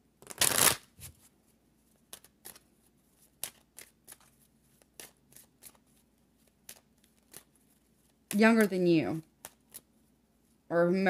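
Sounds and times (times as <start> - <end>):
cards clicking and snapping: 0.2 - 0.9, 2.1 - 9.9
cards rustling: 0.2 - 10.0.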